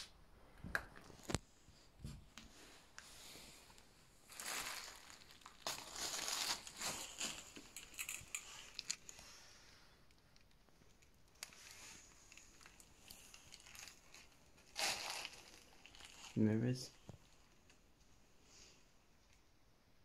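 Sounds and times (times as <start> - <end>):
debris rustling and crunching: 4.2 - 9.2, 11.4 - 16.4.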